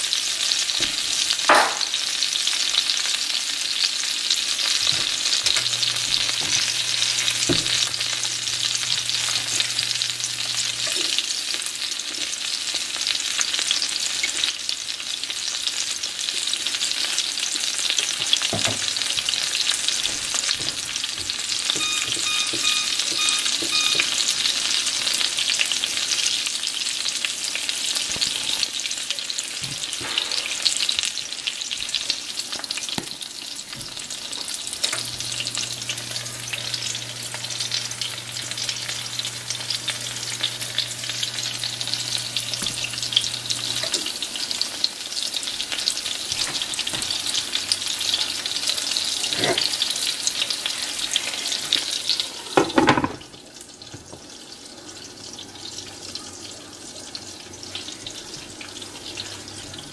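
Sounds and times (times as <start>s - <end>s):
fish frying in oil: 0.0s - 59.9s
oil crackles and pops: 0.6s - 14.6s.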